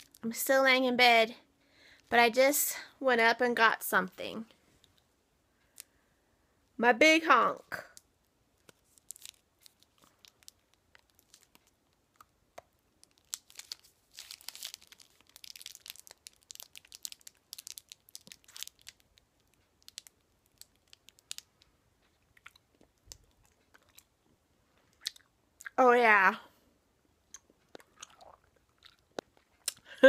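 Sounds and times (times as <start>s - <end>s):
candy wrapper crinkling: 7.8s - 24.1s
close-up chewing: 9.0s - 25.7s, 27.3s - 29.9s.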